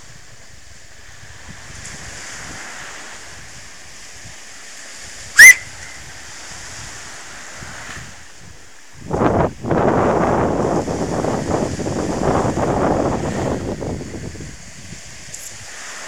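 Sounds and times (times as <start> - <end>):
waves breaking on a beach: 0.0 - 16.0
upward sweeping whistle: 5.4 - 6.0.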